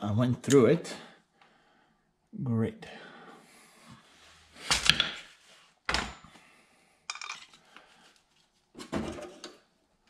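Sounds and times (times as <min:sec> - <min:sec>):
metal tool clinking and scraping: 0:07.1 - 0:07.6.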